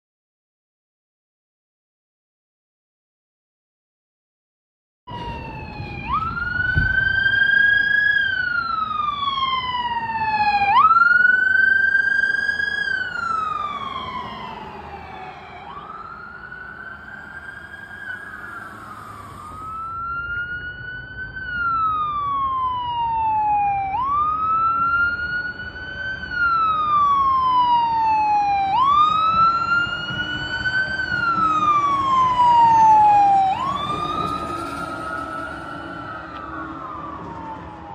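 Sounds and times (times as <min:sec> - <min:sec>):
fire engine siren wailing: 0:05.1 - 0:37.9.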